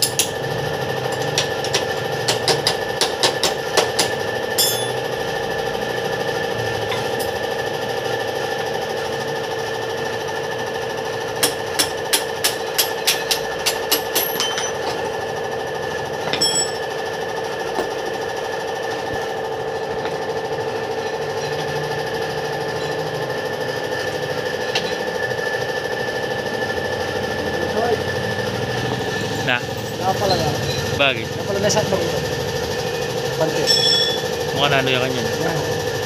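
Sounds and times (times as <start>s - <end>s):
steady mechanical hum: 0.0s - 36.0s
hammer striking metal: 2.3s - 5.0s, 11.4s - 14.9s, 16.3s - 16.8s, 33.6s - 34.3s.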